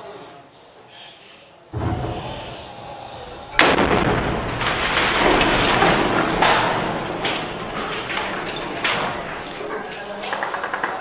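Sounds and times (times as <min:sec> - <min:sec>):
rumbling noise with cracks: 0:01.8 - 0:11.0
artillery shell exploding: 0:03.5 - 0:09.7.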